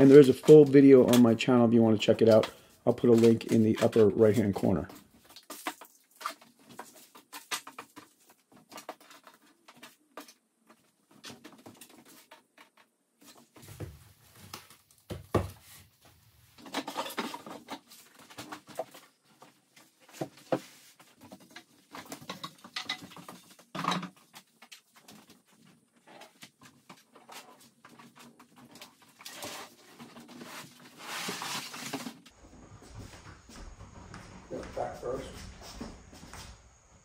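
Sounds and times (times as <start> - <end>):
objects tapping and knocking: 0.0 - 15.6, 16.6 - 30.8
footsteps on a wooden floor: 32.4 - 37.0.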